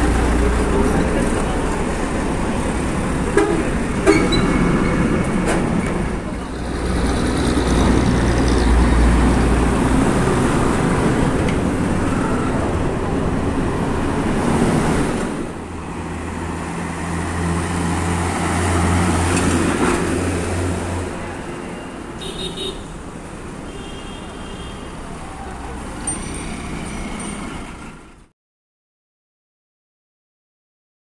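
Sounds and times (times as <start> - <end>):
truck engine humming: 0.0 - 22.1
truck diesel engine passing: 0.0 - 22.2, 24.8 - 28.3.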